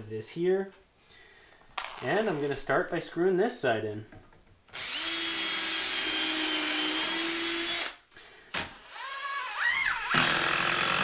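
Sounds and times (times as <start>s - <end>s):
power drill driving screws: 4.7s - 11.0s.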